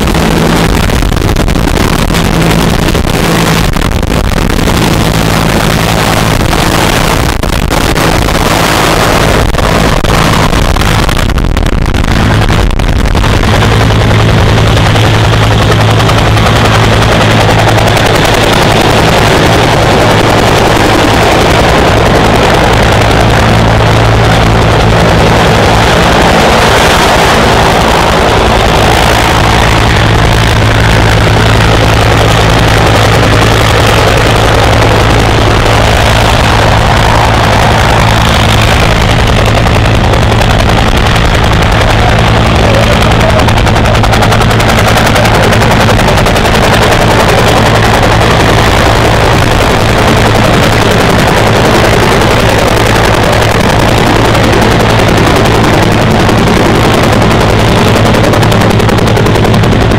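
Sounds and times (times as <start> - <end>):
helicopter engine drone: 0.0 - 59.9
helicopter rotor chopping: 0.0 - 59.9.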